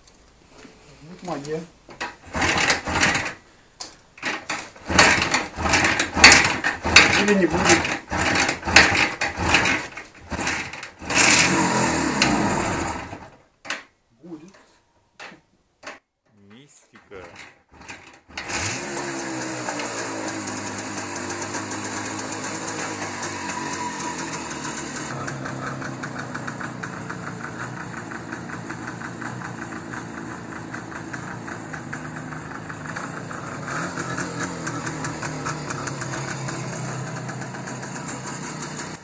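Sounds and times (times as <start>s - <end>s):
motorcycle engine idling: 19.1s - 39.0s.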